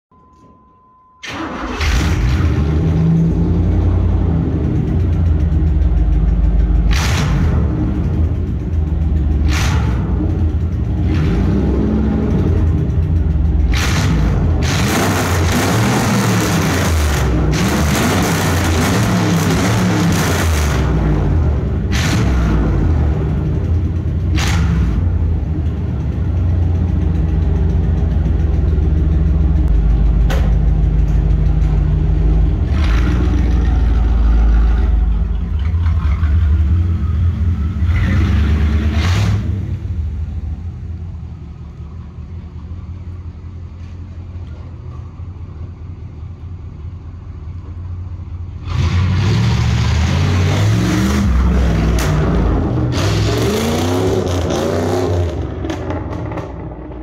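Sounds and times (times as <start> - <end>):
car engine revving: 1.3 - 41.8, 48.5 - 57.0
exhaust pops: 29.4 - 34.0.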